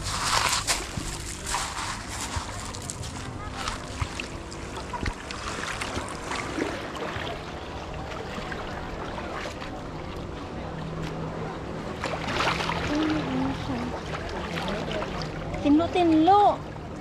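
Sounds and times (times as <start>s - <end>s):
small waves lapping on pebbles: 0.0s - 9.8s
small splashes and clicks: 0.2s - 7.3s.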